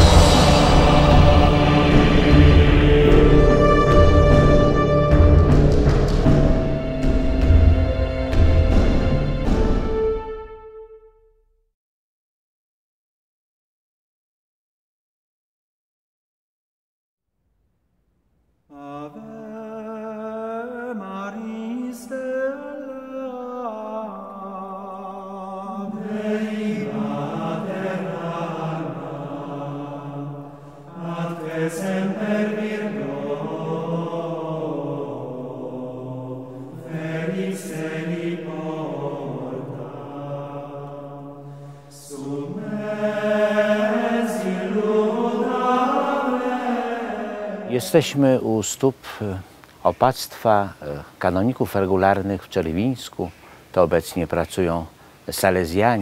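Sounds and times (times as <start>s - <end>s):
men chanting: 0.0s - 9.5s, 18.7s - 48.6s.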